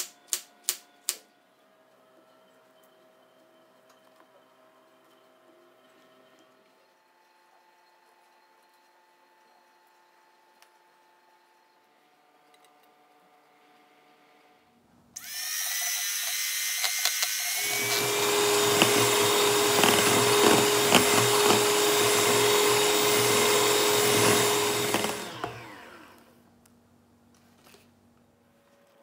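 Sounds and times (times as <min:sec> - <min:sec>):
electric hand mixer whining: 0:15.2 - 0:26.4.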